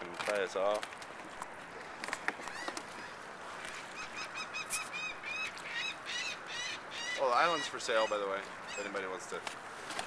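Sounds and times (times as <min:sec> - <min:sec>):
bird calling high: 0:02.4 - 0:09.1.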